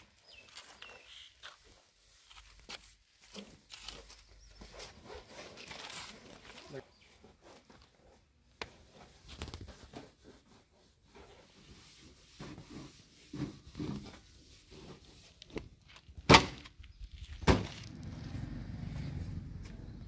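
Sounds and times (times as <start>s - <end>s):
cloth rubbing on metal: 8.9s - 15.4s.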